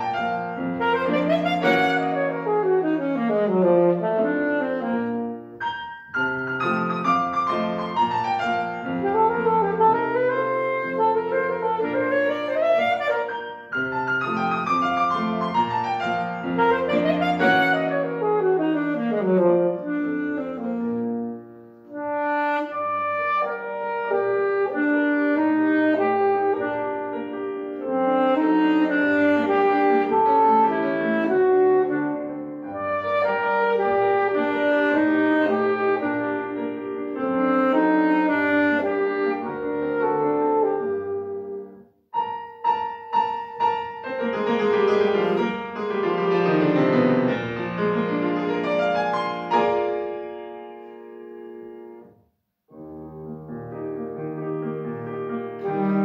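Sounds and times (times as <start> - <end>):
alto saxophone: 0.0 - 5.6, 6.5 - 42.3, 54.8 - 56.0
grand piano: 0.0 - 56.0.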